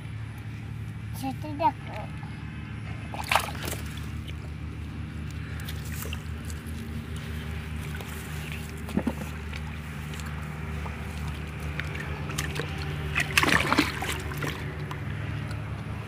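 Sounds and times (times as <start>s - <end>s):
water splashing: 2.9s - 4.8s, 5.4s - 15.7s.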